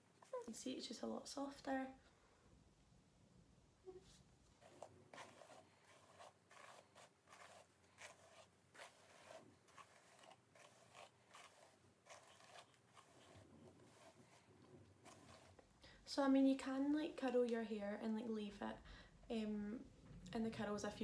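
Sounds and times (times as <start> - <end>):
brush drawn through hair: 4.0 - 15.7.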